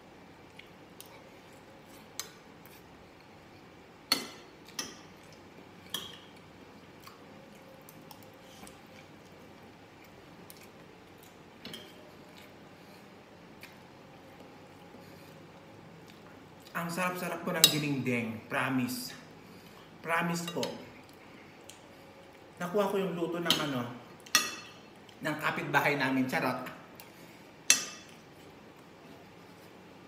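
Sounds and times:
cutlery clinking against glass: 23.5 - 24.8.

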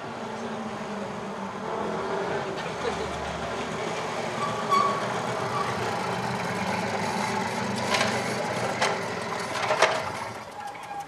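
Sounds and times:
high-pitched squeak: 4.4 - 5.8, 10.5 - 11.0.

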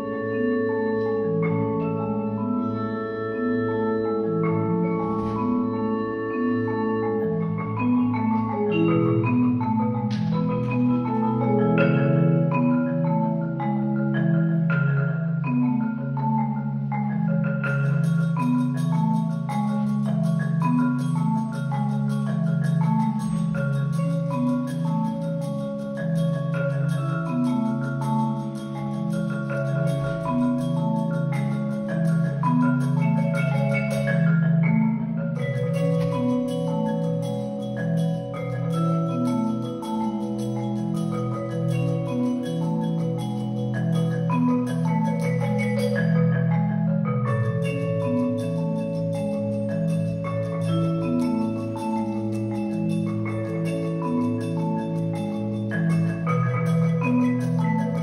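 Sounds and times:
low marimba pattern: 0.0 - 58.0
mallet keyboard melody: 0.0 - 58.0
fast high ticking: 16.5 - 58.0.

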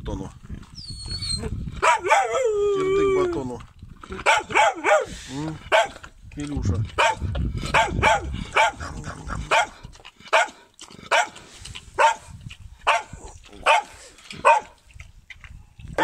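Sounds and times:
dog barking: 1.8 - 2.4, 4.2 - 6.0, 7.0 - 8.8, 9.5 - 11.4, 12.0 - 14.8.

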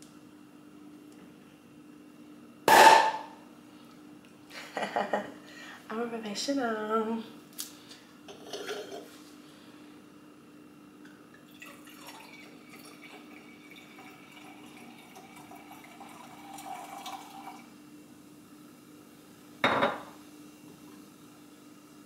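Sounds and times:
sparkling wine fizzing into glass: 11.4 - 17.7.

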